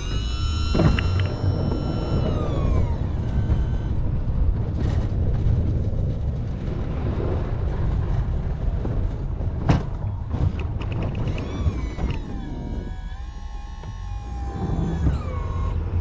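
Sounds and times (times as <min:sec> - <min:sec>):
falling whine: 0:00.0 - 0:05.1, 0:10.1 - 0:16.0
plow vehicle rumbling: 0:00.0 - 0:16.0.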